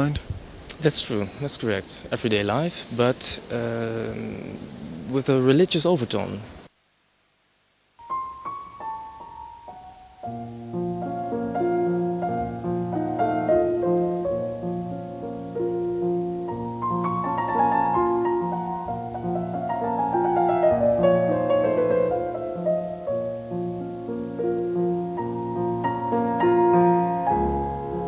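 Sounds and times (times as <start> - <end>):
piano music: 8.0 - 28.0.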